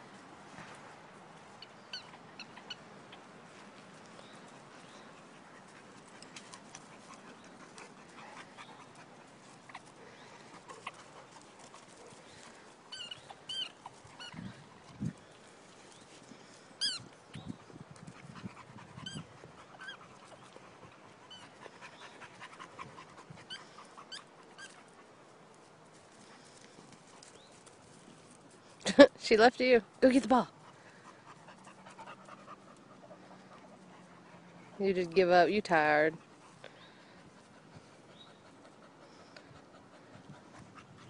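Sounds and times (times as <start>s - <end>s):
dogs panting: 0.2s - 28.8s, 29.6s - 41.0s
dogs whining and yelping: 12.9s - 14.6s, 18.8s - 24.9s.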